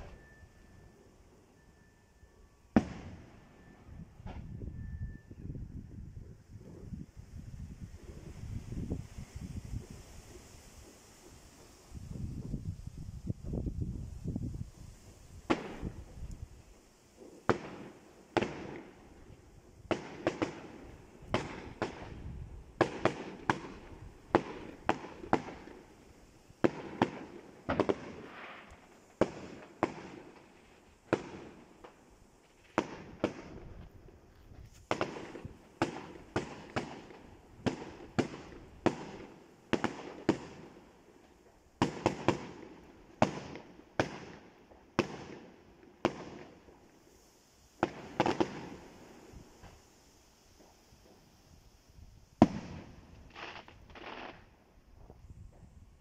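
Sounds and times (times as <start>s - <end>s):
fireworks bangs: 2.7s - 4.5s, 15.4s - 16.2s, 17.2s - 40.8s, 41.4s - 47.2s, 47.8s - 49.9s, 50.5s - 55.8s.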